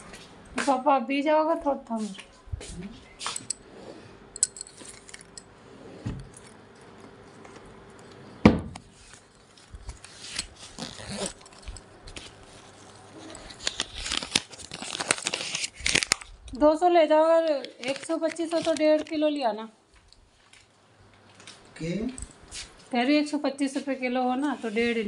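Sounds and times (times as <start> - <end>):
knocks and rustling of handling: 4.4 - 13.6.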